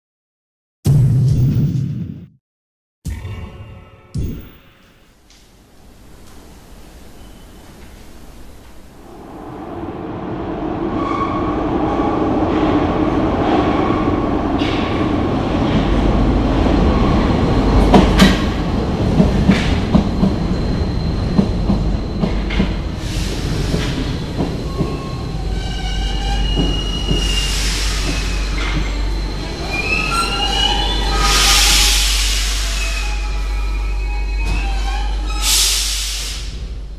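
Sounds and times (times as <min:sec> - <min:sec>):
metro train rumble: 0:05.5 - 0:36.9
brake squeals: 0:21.9 - 0:36.0
air hiss: 0:31.4 - 0:32.8, 0:35.4 - 0:36.6.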